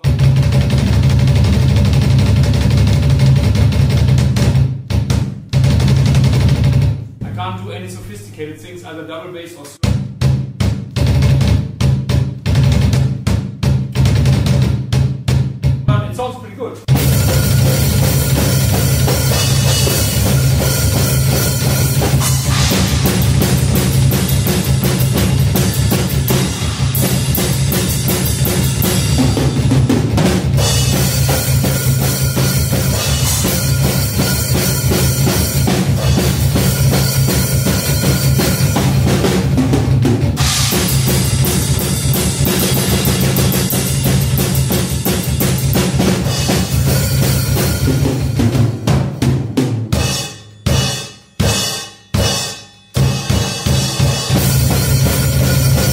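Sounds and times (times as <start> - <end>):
fast double bass drum kicks: 0.0 - 7.5, 16.9 - 51.6, 53.0 - 55.9
cymbals: 16.9 - 39.4, 40.4 - 48.6, 49.9 - 55.9.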